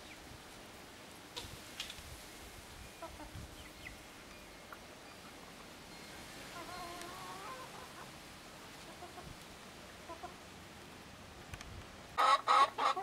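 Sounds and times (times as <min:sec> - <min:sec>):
hen clucking softly: 0:06.5 - 0:08.1, 0:08.8 - 0:09.3, 0:10.0 - 0:10.4, 0:12.2 - 0:13.0.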